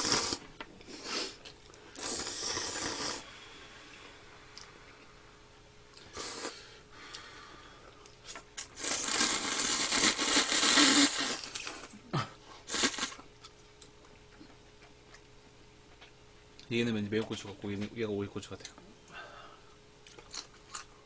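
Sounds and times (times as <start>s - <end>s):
slurping noodles: 0.0s - 1.4s, 2.0s - 3.3s, 6.0s - 6.7s, 8.6s - 12.0s, 12.7s - 13.2s.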